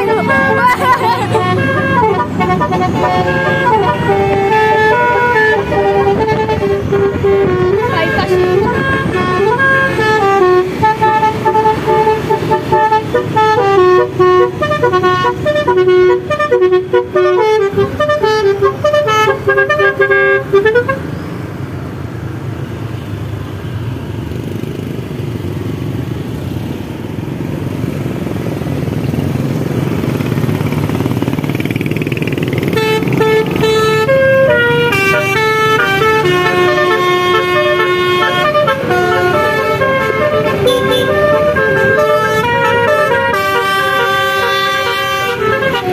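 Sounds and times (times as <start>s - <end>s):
multi-tone air horn melody: 0.0s - 21.1s, 32.6s - 45.9s
passing traffic and engines: 0.0s - 45.9s.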